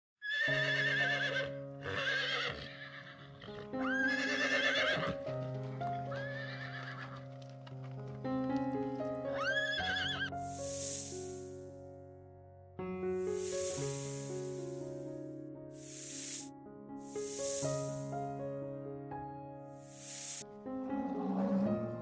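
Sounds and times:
horse whinnying: 0.2s - 5.2s, 6.1s - 7.2s, 9.4s - 10.3s
soft background music: 0.5s - 22.0s
brief hiss: 10.4s - 11.5s, 13.2s - 15.0s, 15.8s - 18.2s, 19.8s - 20.5s.

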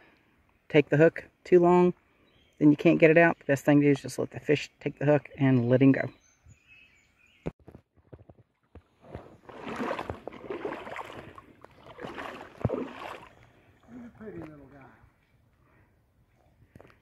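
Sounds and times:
creek water splashing: 8.4s - 15.0s.

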